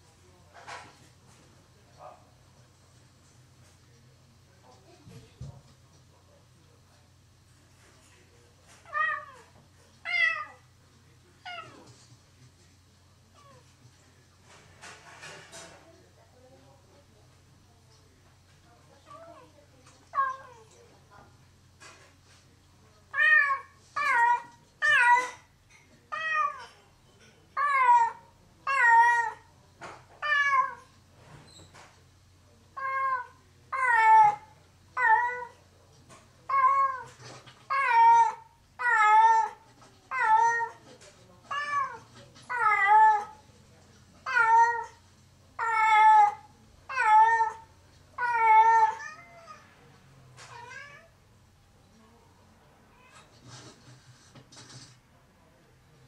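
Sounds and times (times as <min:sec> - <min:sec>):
cat meowing loudly: 0:45.6 - 0:49.6.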